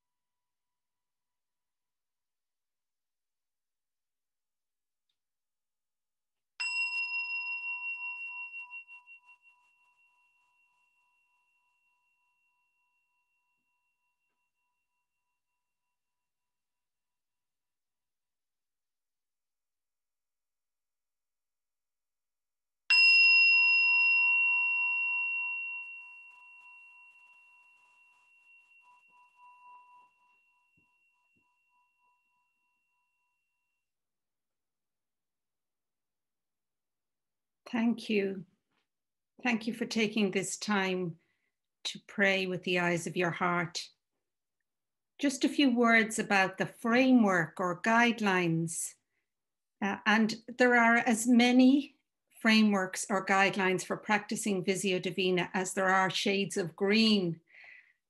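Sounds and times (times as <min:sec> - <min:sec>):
meditation bell ringing: 0:06.6 - 0:16.4, 0:22.9 - 0:34.0.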